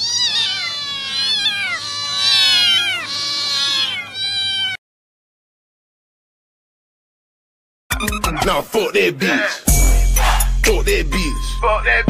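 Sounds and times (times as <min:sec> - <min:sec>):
cats meowing: 0:00.0 - 0:04.8.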